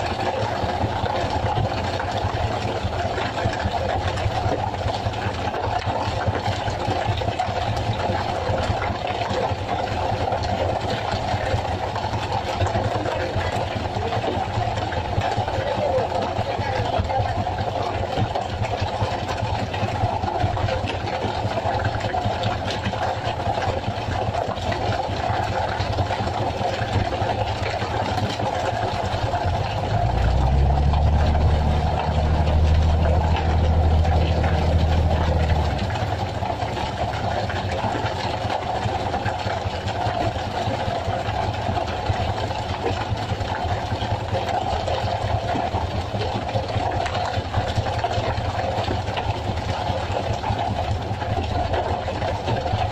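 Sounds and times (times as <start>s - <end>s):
boat engine running: 0.0s - 52.9s
deep loud drone: 28.7s - 39.4s.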